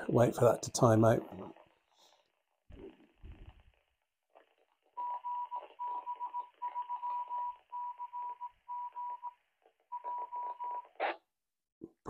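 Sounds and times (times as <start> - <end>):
morse code tone from small speaker: 5.0 - 9.3, 9.9 - 10.8.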